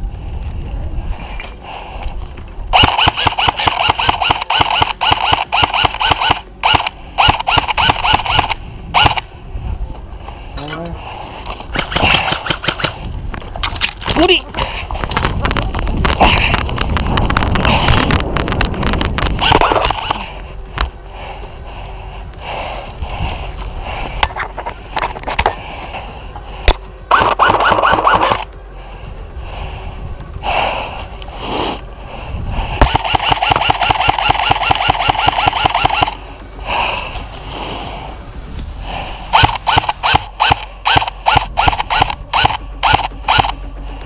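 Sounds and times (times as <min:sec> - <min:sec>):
airsoft rifle automatic fire: 0:02.7 - 0:09.2, 0:27.1 - 0:28.5, 0:32.8 - 0:36.2, 0:39.4 - 0:43.6.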